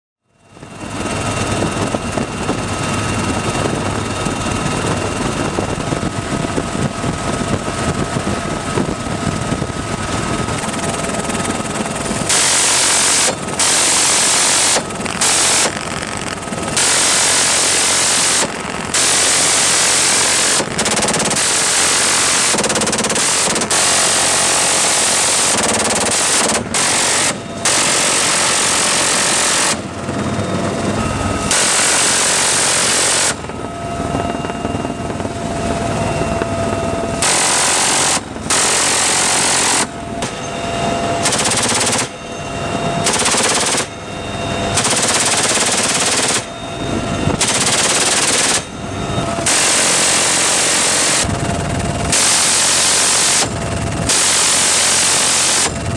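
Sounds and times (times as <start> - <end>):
helicopter turbine whine and rotor: 0.2 - 55.9
minigun firing ripping buzz: 9.4 - 40.4, 41.2 - 42.2, 47.2 - 55.9.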